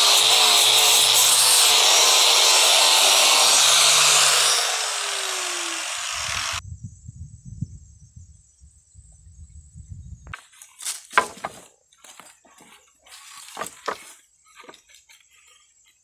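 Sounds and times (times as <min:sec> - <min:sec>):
angle grinder sanding wood: 0:00.0 - 0:06.6
motor winding down whine: 0:03.4 - 0:06.6.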